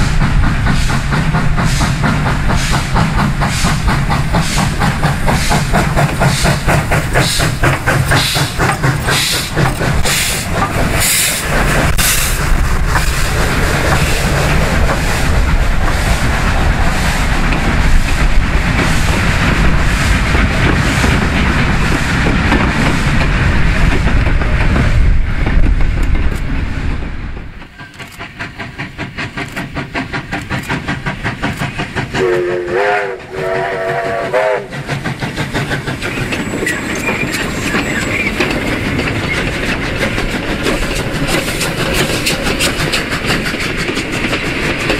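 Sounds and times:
steam locomotive chuffing: 0.0s - 44.9s
steam locomotive exhaust beats: 0.0s - 44.9s
carriages clattering over rail joints: 0.2s - 26.6s, 27.4s - 32.4s, 33.2s - 44.9s
steam whistle blasts: 32.2s - 34.7s.

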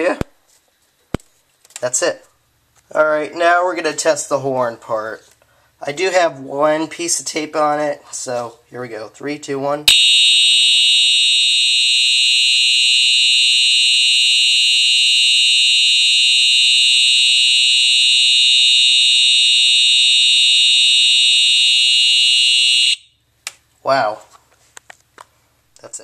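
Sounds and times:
fire alarm horn: 9.9s - 23.2s.

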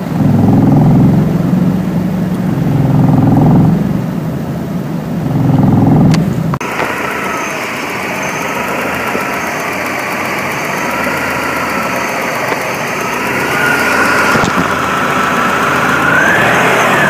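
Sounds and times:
car engine idling roughly: 0.0s - 17.0s
thin whine: 0.0s - 17.0s.

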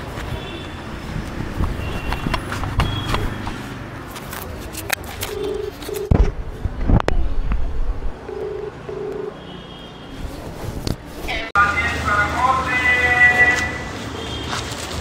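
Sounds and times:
street background noise: 0.0s - 15.0s.

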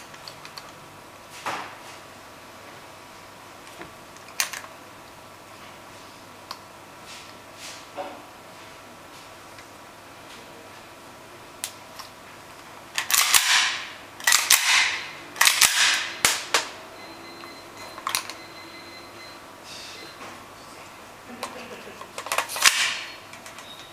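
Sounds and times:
airsoft pistol shots: 13.1s - 16.5s.

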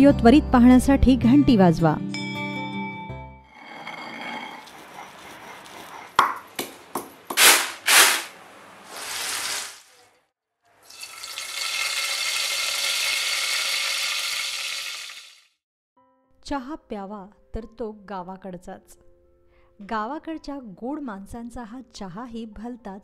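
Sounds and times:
oil sizzling in a pan: 8.9s - 9.9s, 10.8s - 15.5s.

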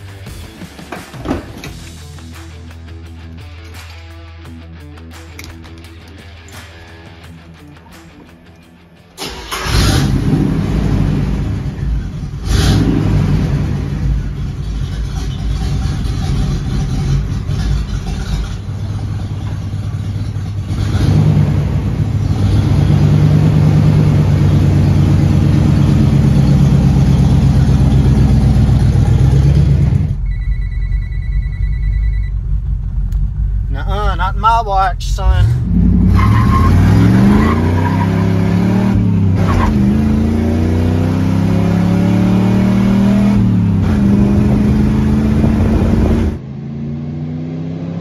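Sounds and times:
engine revving: 9.2s - 30.3s, 35.3s - 48.0s
pickup engine cranking and starting: 9.2s - 33.7s.

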